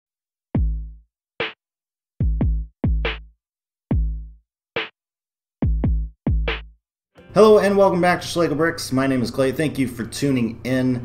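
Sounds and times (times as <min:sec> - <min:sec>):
deep kick drums: 0:00.6 - 0:01.0, 0:02.2 - 0:03.3, 0:03.9 - 0:04.4, 0:05.6 - 0:06.7.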